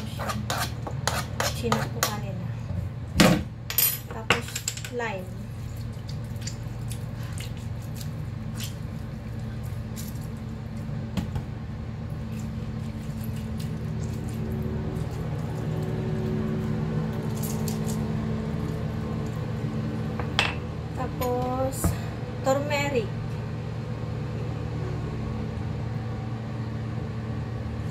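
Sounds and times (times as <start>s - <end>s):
steady low hum: 0.0s - 27.9s
wet squishing of citrus: 5.4s - 11.0s, 12.1s - 19.7s.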